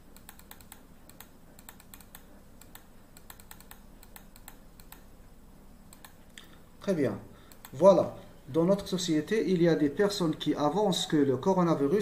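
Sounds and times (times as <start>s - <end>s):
low steady hum: 0.0s - 12.0s
computer keys clicking: 0.1s - 5.1s, 5.9s - 6.5s, 7.5s - 7.8s.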